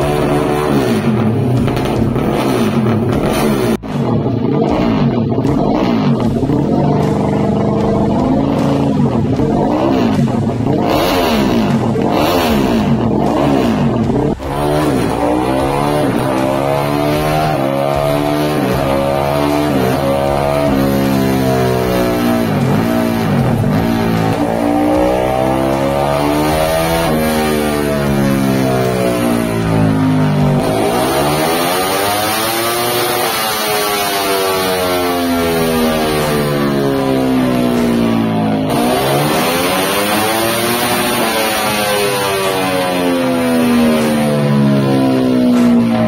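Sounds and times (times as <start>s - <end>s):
motorcycle engine revving: 0.0s - 46.0s.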